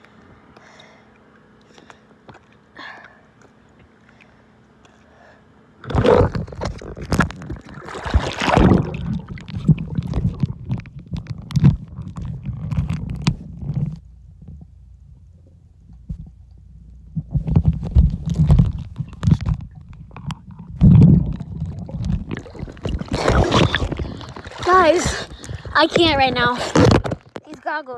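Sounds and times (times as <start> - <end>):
dull underwater rumble: 5.8 - 27.4
water splashing over microphone: 5.9 - 13.2, 17.4 - 27.4.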